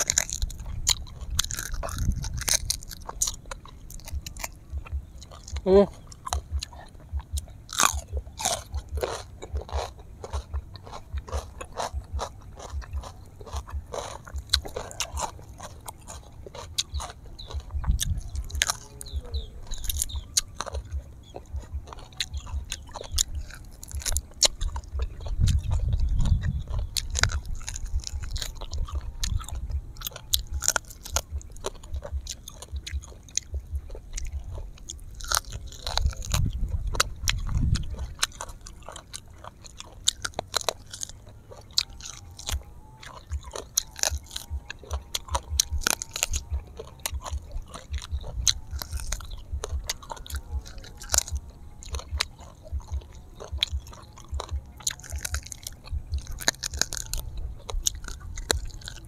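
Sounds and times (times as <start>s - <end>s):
chewing and crunching: 0.0s - 59.0s
low rumble: 0.0s - 59.0s
mouth clicks: 0.0s - 59.0s.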